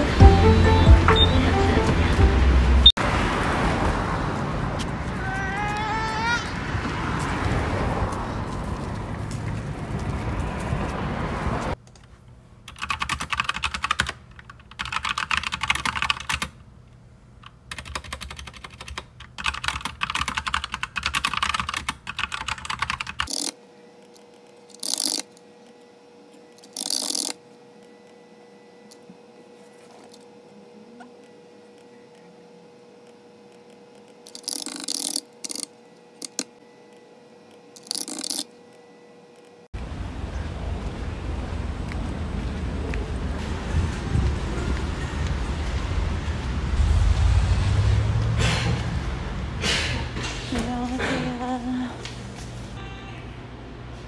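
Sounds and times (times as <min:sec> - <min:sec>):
typing on a computer keyboard: 0:12.7 - 0:16.6, 0:17.4 - 0:23.5, 0:24.7 - 0:25.2, 0:26.6 - 0:27.4, 0:34.0 - 0:36.5, 0:37.8 - 0:38.5.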